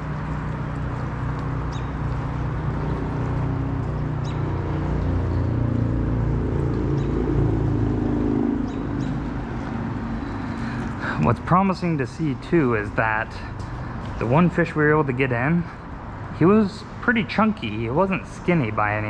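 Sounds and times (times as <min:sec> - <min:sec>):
vehicle engine hum: 0:00.0 - 0:19.0.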